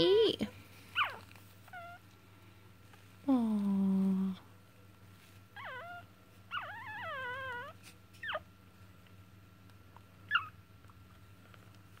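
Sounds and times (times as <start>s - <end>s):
faint low hum: 0.0s - 12.0s
puppy whimpering: 0.9s - 2.0s, 5.6s - 8.5s, 10.2s - 10.6s.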